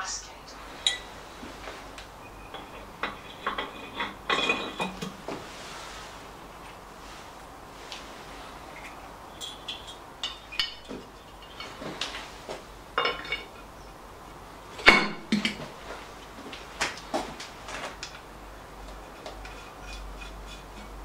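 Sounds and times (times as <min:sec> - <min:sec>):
metal clinks and knocks: 0:02.2 - 0:05.4, 0:08.7 - 0:12.4, 0:13.0 - 0:13.7, 0:14.7 - 0:16.1.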